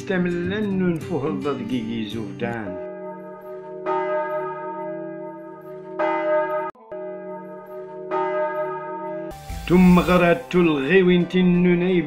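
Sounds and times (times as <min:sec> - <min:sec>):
bell tolling: 0:02.8 - 0:10.4.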